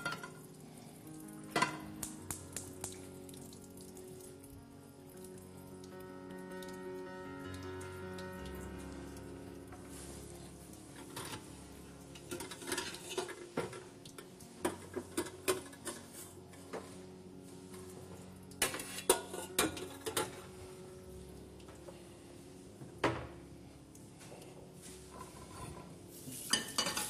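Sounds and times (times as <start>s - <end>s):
metal pots and lids clattering: 0.0s - 0.4s, 1.5s - 1.9s, 11.0s - 11.5s, 12.2s - 17.0s, 18.6s - 20.5s, 25.1s - 27.0s.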